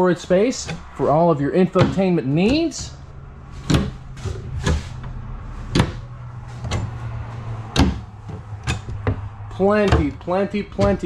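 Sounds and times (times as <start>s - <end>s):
steady low hum: 0.0s - 11.0s
cabinet doors opening and shutting: 0.3s - 11.0s.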